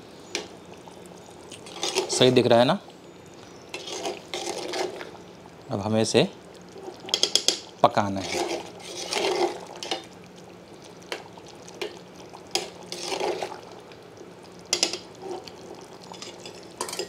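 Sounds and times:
faint steady hum: 0.0 - 17.0
spoon stirring thick gravy: 0.4 - 2.5, 3.4 - 5.2, 6.6 - 10.2, 11.0 - 13.7, 14.7 - 17.0
spoon scraping metal pot: 1.5 - 2.2, 3.7 - 5.1, 6.9 - 10.0, 12.9 - 13.6.

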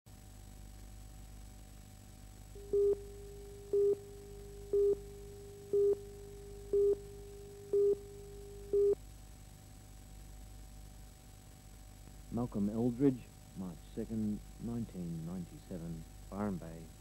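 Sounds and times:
faint hum and hiss: 0.1 - 17.0
countdown beeps: 5.7 - 6.0, 6.7 - 7.0.

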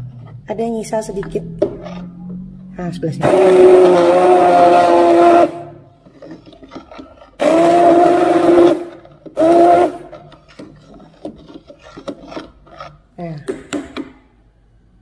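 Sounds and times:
hand blender motor whining: 3.2 - 5.8, 6.4 - 12.4.

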